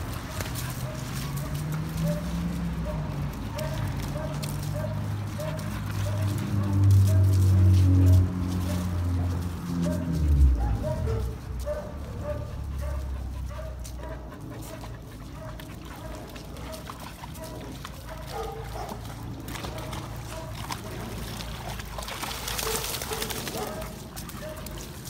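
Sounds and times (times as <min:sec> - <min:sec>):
dogs splashing through water: 0:00.0 - 0:25.0
wet dog shaking off water: 0:19.1 - 0:25.0.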